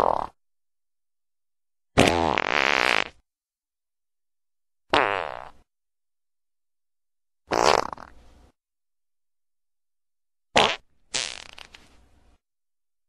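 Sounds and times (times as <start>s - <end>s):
farts: 0.0s - 0.4s, 2.0s - 3.2s, 4.9s - 5.6s, 7.5s - 8.2s, 10.6s - 11.8s.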